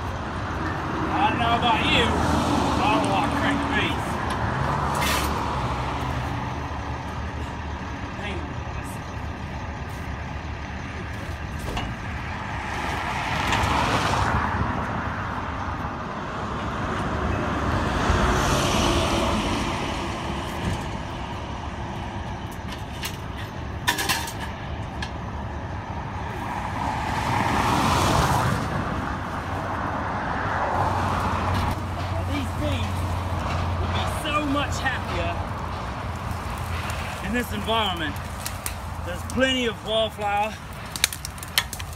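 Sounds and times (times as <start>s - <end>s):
vehicles passing on highway: 0.0s - 41.9s.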